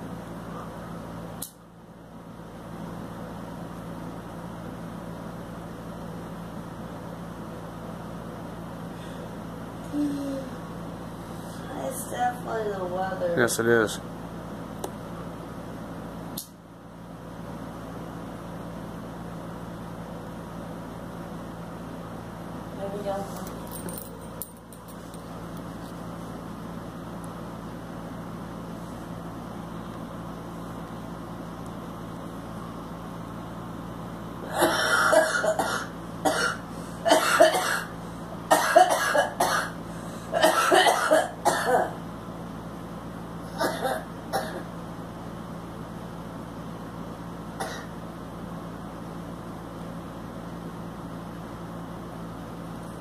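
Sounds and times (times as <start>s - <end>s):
room hum and hiss: 0.0s - 53.0s
woman clearing throat: 34.5s - 37.9s, 38.5s - 42.0s, 43.5s - 44.7s, 47.6s - 48.0s
woman coughing harshly: 34.5s - 37.9s, 38.5s - 42.0s, 43.5s - 44.7s, 47.6s - 47.9s.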